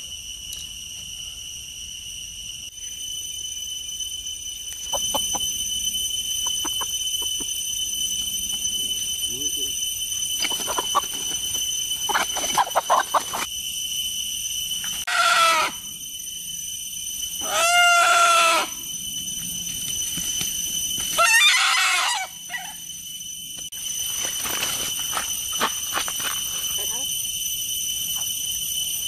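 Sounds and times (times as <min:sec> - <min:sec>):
rooster crowing: 0:17.4 - 0:18.8, 0:21.2 - 0:22.8
rustling through leaves: 0:23.9 - 0:26.8.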